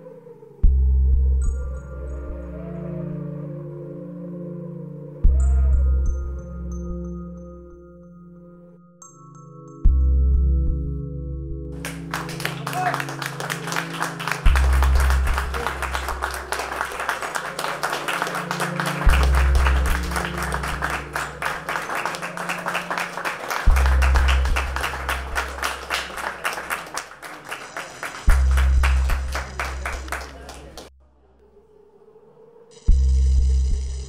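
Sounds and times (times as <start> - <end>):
slow melody: 0.9 - 27.5
crowd applauding: 11.8 - 30.9.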